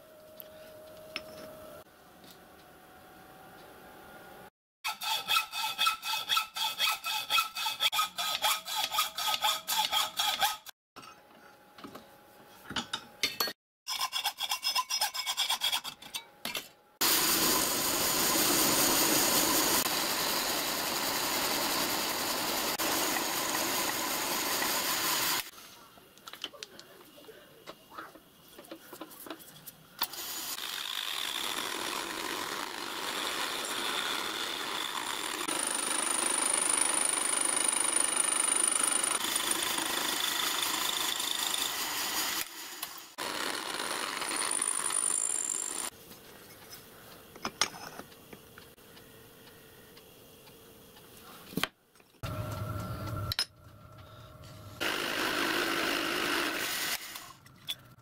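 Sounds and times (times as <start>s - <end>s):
low machine hum: 52.2s - 54.8s.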